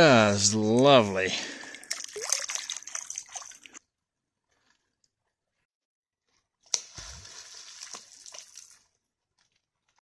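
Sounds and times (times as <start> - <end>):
water splashing: 1.4 - 3.8, 6.7 - 8.9
beaver tail slapping water: 1.8 - 3.8, 6.7 - 8.8.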